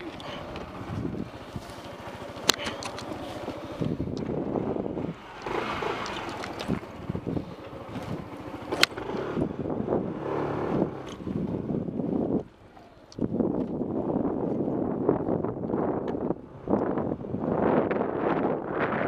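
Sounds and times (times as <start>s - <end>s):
motorcycle engine: 0.0s - 19.0s
wind buffeting microphone: 0.0s - 19.0s
sharp clicks: 2.4s - 3.2s.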